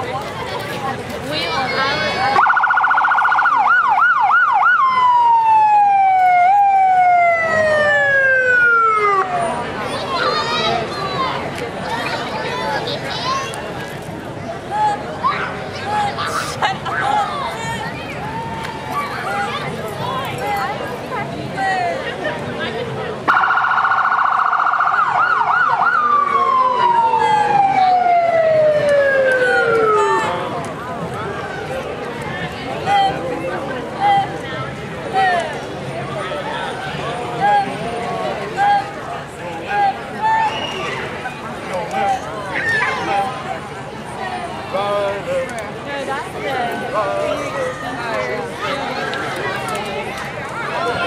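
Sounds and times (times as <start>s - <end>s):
electronic vehicle siren: 2.4s - 9.7s, 23.3s - 30.3s.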